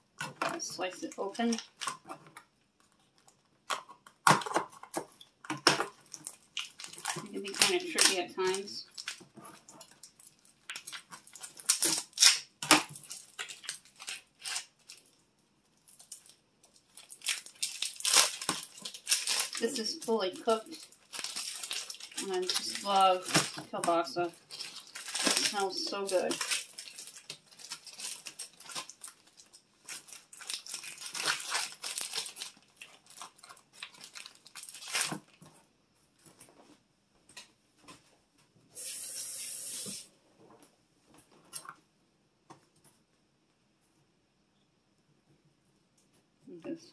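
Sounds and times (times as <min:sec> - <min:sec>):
plastic packaging crinkling: 0:00.1 - 0:35.5.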